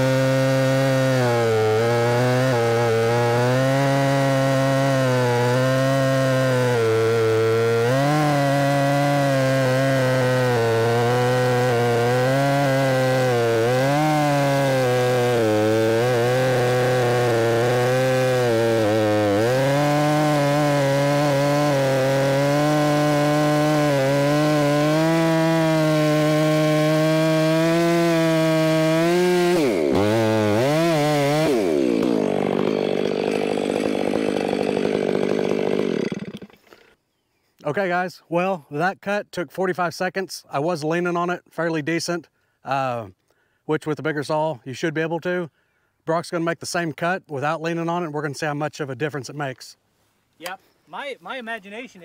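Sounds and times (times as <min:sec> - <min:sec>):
chainsaw cutting log: 0:00.0 - 0:37.0.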